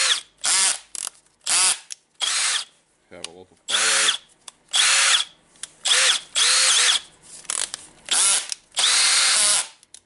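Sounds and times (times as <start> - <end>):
drill motor spinning up: 1.5 - 2.7, 3.7 - 7.0, 8.1 - 9.7.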